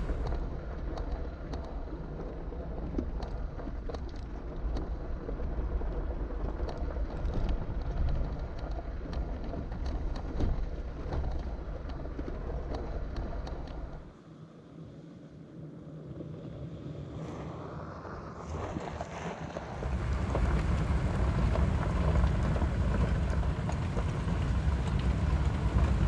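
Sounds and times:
vehicle rumbling on gravel: 0:00.0 - 0:00.3, 0:18.9 - 0:26.0
gravel ticks and rattles: 0:00.0 - 0:14.3, 0:15.6 - 0:26.0.

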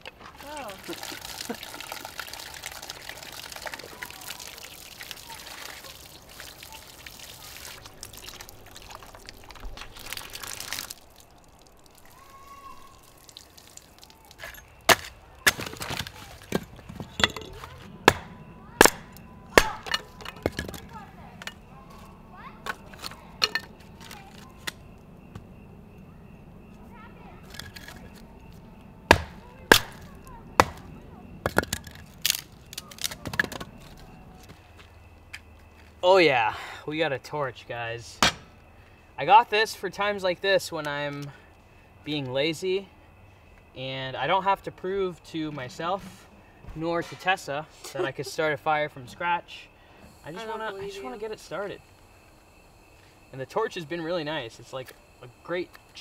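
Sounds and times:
water splashing over dishes: 0:00.5 - 0:16.6
hatchet chopping wood: 0:14.5 - 0:20.8, 0:29.1 - 0:33.7, 0:38.2 - 0:38.5
sharp knocks: 0:29.1 - 0:30.0
wooden knocks and clatters: 0:33.0 - 0:34.0.

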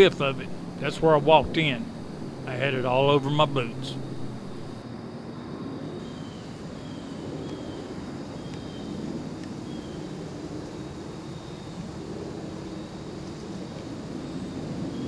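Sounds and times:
distant engine drone: 0:00.0 - 0:05.8.

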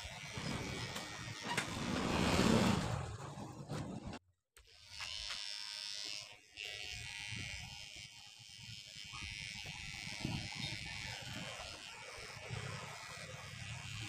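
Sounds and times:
electric hair clipper buzzing: 0:00.0 - 0:01.8, 0:04.6 - 0:14.0.

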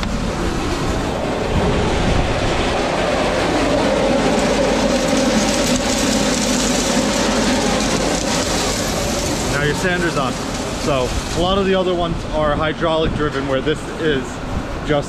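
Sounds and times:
salt spreader drive rattling: 0:03.3 - 0:13.2
rock salt feeding out: 0:04.2 - 0:12.6.

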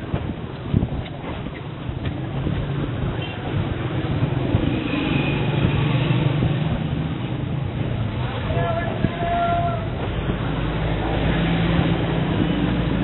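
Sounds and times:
road noise: 0:00.0 - 0:13.0
vehicle engines running: 0:00.0 - 0:13.0.

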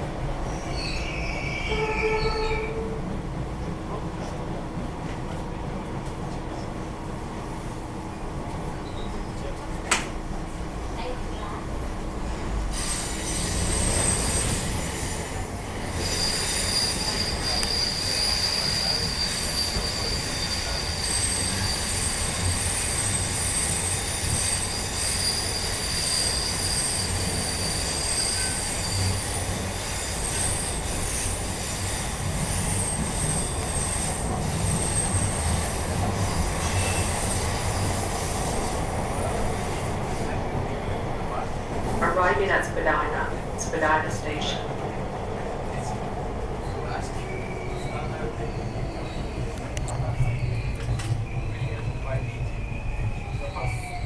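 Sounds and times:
subway train rumbling in tunnel: 0:00.0 - 0:54.0
wheels squealing: 0:12.8 - 0:38.7, 0:46.6 - 0:54.0.

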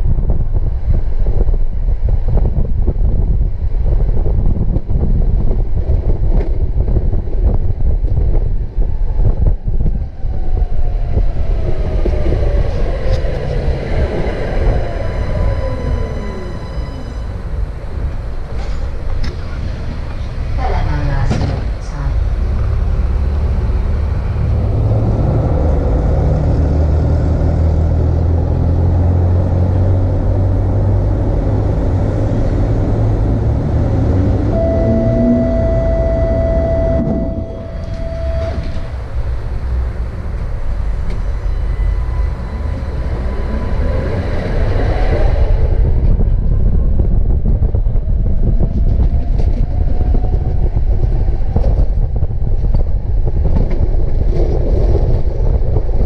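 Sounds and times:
electric tram humming: 0:00.0 - 0:56.0
tram motor whine rising: 0:06.9 - 0:20.5, 0:22.2 - 0:53.8
steady beep: 0:34.5 - 0:39.0.

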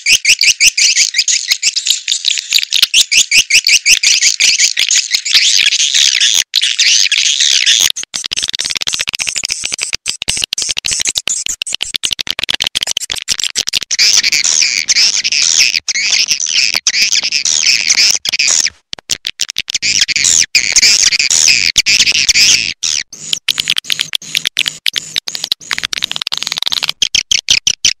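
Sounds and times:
bird twittering through speakers: 0:00.0 - 0:07.9, 0:13.9 - 0:18.7, 0:19.8 - 0:23.4.

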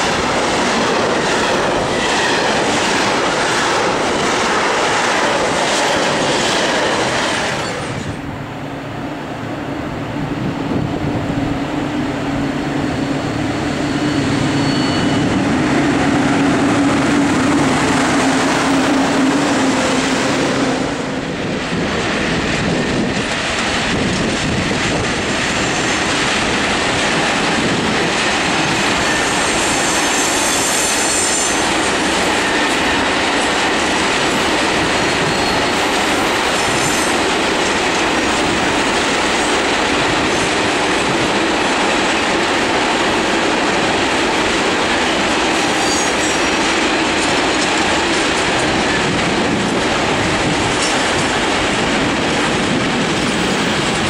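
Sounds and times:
freight train wagons rumbling: 0:00.0 - 0:54.0
rail vehicle droning: 0:00.0 - 0:54.0
train wheel squeal: 0:01.1 - 0:04.0, 0:05.2 - 0:08.2, 0:12.4 - 0:20.3, 0:28.6 - 0:33.6, 0:34.2 - 0:38.1, 0:45.1 - 0:46.7.

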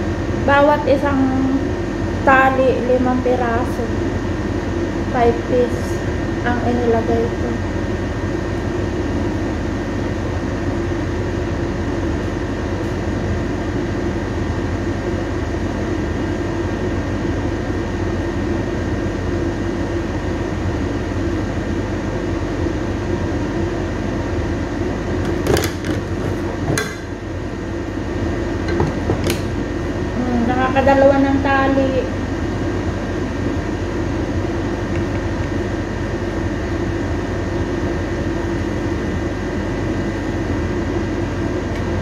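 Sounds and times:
machine hum and whir: 0:00.0 - 0:42.0.

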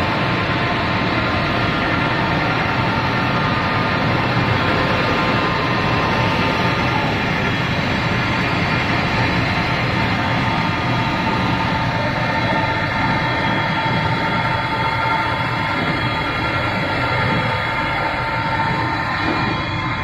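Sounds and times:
faint steady machine tones: 0:00.0 - 0:20.0
slitting machine running: 0:00.0 - 0:20.0.

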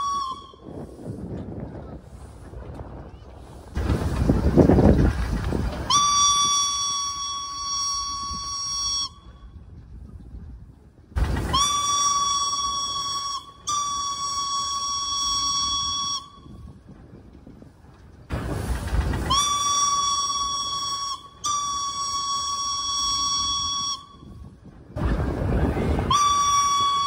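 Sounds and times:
steam whistle blasts: 0:00.0 - 0:01.1, 0:05.9 - 0:09.4, 0:11.3 - 0:16.6, 0:19.2 - 0:24.3, 0:25.7 - 0:27.0.

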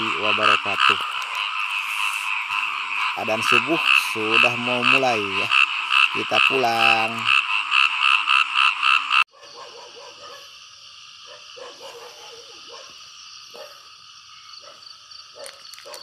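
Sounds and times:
high-pitched night chorus: 0:00.0 - 0:09.2
frogs calling in chorus: 0:00.0 - 0:16.0.

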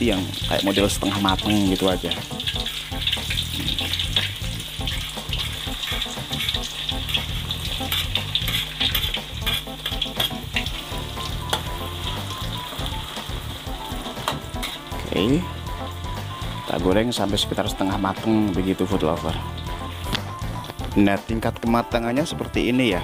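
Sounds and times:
potatoes sizzling in hot oil: 0:00.0 - 0:23.0
metal spatula clicking and scraping: 0:02.4 - 0:10.8.

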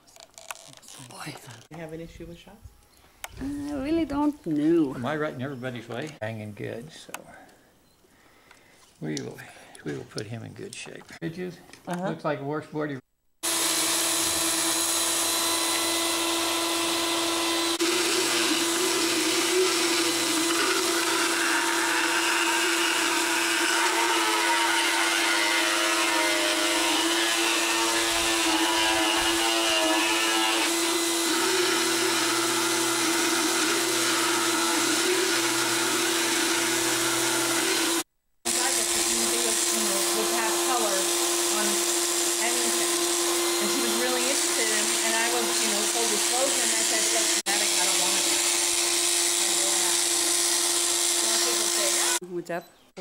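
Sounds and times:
grinding against teeth: 0:00.1 - 0:01.7, 0:17.8 - 0:38.0
motor humming: 0:13.4 - 0:52.2.

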